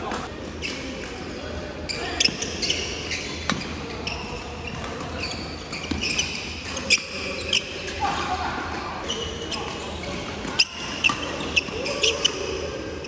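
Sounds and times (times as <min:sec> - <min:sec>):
shoes squeaking on wooden floor: 0:04.0 - 0:07.6.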